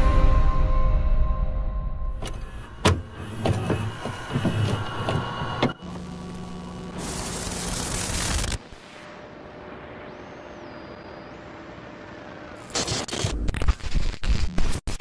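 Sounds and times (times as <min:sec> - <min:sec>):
crackling clicks and distorted thumps: 0:04.4 - 0:09.2, 0:12.6 - 0:15.0
steady electrical hum: 0:04.8 - 0:13.1
loud static hiss: 0:05.2 - 0:15.0.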